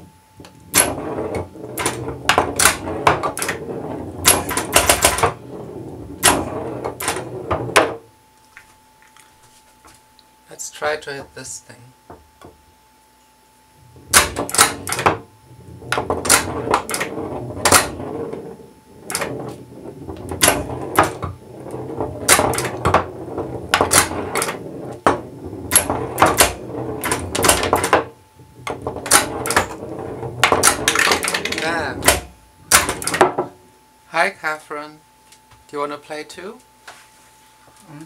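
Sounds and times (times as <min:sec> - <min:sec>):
steel ball rolling and knocking: 0:00.4 - 0:08.1, 0:13.8 - 0:33.6
pinball flippers clacking: 0:00.7 - 0:08.0, 0:14.0 - 0:33.5.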